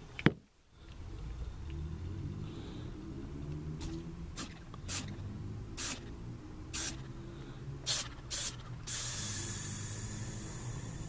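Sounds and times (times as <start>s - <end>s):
gas hissing through drain line: 7.9s - 11.0s.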